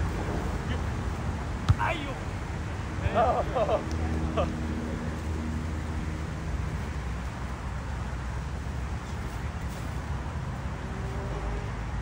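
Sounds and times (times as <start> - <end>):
low rumble and hiss: 0.0 - 12.0.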